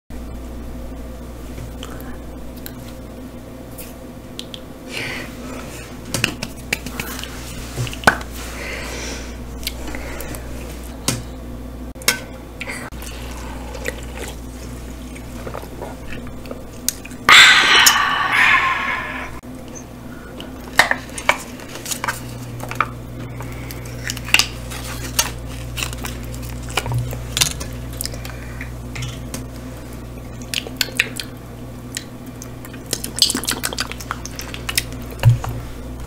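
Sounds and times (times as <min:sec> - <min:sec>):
steady low hum: 0:00.1 - 0:36.0
loud hissing noise: 0:17.3 - 0:19.4.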